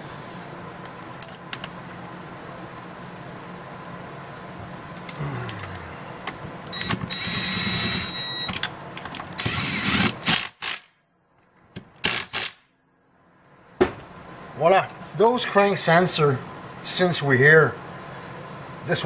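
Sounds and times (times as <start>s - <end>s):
power drill motor whining: 6.8s - 8.4s, 9.4s - 10.8s.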